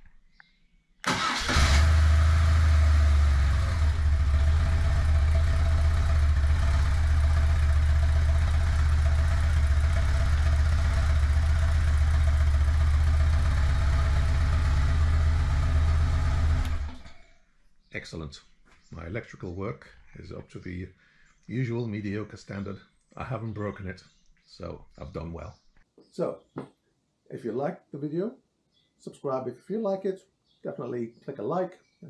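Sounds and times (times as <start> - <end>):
motorcycle engine starting and idling: 1.1 - 17.4.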